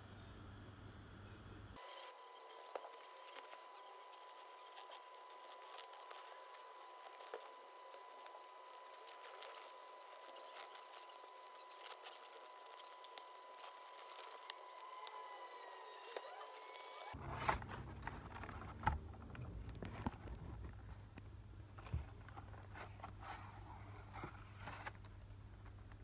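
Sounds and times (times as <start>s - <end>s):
plastic tray crinkling: 1.8s - 20.8s.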